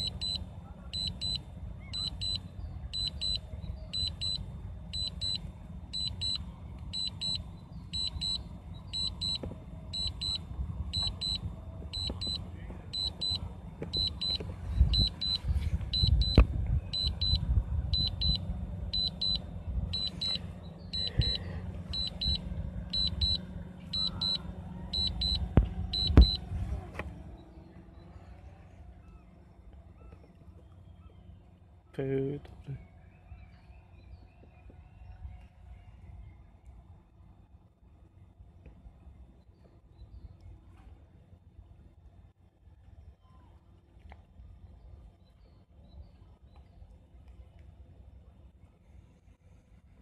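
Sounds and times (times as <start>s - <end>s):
remote controller triple beeps: 0.0s - 0.4s, 1.0s - 1.4s, 2.0s - 2.4s, 3.0s - 3.4s, 4.0s - 4.4s, 5.0s - 5.4s, 6.0s - 7.4s, 8.0s - 9.4s, 10.0s - 10.4s, 11.0s - 12.4s, 13.0s - 16.4s, 17.0s - 17.4s, 18.0s - 18.4s, 19.0s - 19.4s, 20.0s - 20.4s, 21.0s - 23.4s, 24.0s - 26.4s
low rumble: 0.0s - 31.4s
sharp thumps: 25.4s - 26.4s.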